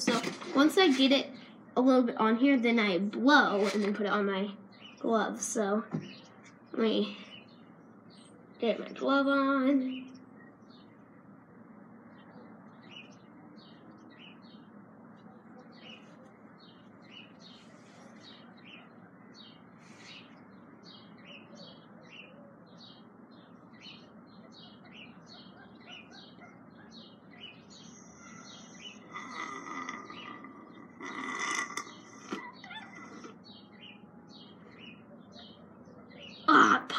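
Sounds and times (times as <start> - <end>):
small birds chirping: 0.0 - 36.9.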